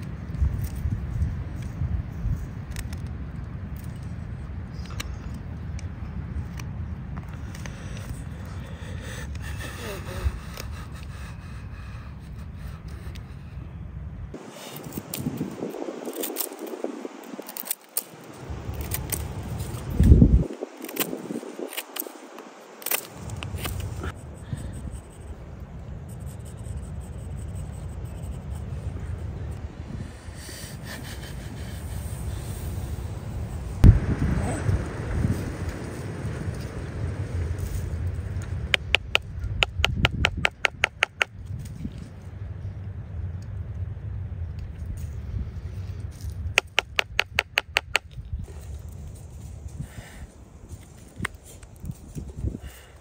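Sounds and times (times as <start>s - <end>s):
low rumble: 32.5s - 39.6s
mallet tapping wooden chisel: 38.8s - 41.3s, 46.6s - 48.0s.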